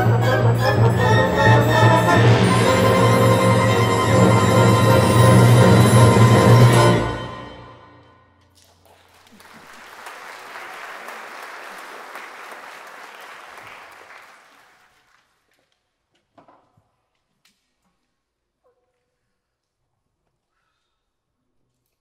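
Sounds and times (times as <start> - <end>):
orchestra closing chord: 0.0 - 8.0
audience applause: 8.8 - 15.3.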